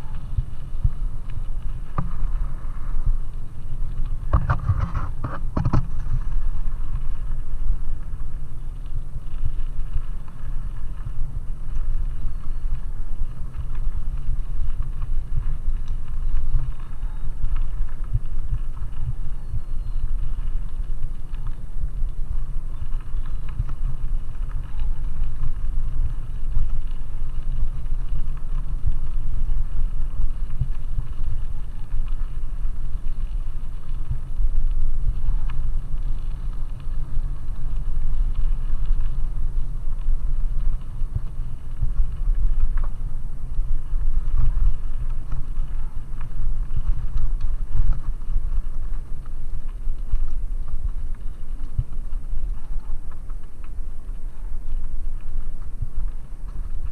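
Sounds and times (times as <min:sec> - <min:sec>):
bicycle tyres rolling on gravel: 0:00.0 - 0:56.9
wind buffeting microphone: 0:00.0 - 0:56.9
ticks of grit: 0:03.9 - 0:06.4.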